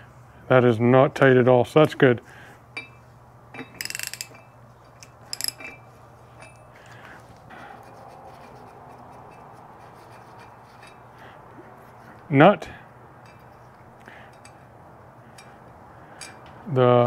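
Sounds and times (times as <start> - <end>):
faint steady hum: 0.0 - 17.0
metal hardware clinking: 2.8 - 6.8, 13.2 - 14.7.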